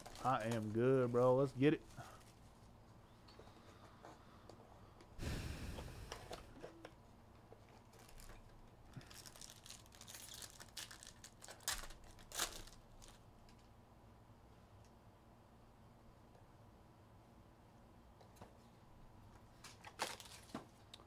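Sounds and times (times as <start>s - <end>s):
foil card pack tearing: 0.0s - 2.4s, 7.9s - 13.2s, 19.6s - 20.6s
wrapper crinkling: 0.0s - 2.7s, 7.7s - 13.6s, 19.6s - 21.0s
handling rustle: 0.0s - 3.6s, 6.2s - 13.6s.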